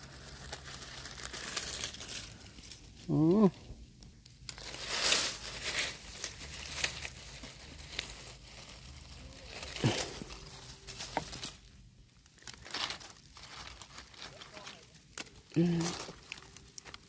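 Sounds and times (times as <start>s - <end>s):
rustling and crackling: 0.0s - 17.0s
sharp clicks and crinkles: 12.3s - 17.0s.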